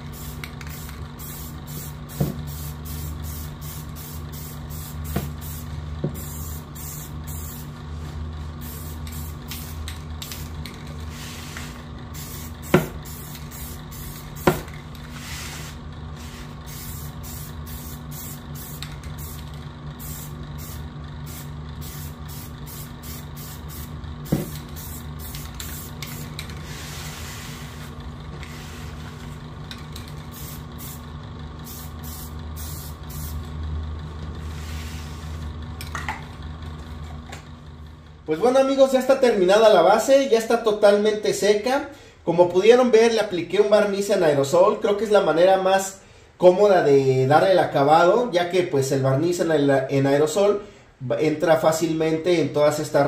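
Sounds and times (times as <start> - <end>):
aerosol spray hissing bursts: 0.0 - 7.8, 8.6 - 10.5, 11.1 - 29.1, 30.3 - 33.4
steady low hum: 0.0 - 49.2.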